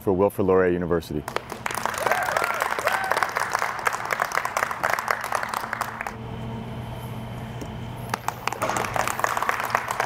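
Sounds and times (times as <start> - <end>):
low steady hum: 0.0 - 10.0
audience applause: 1.3 - 6.2, 8.1 - 10.0.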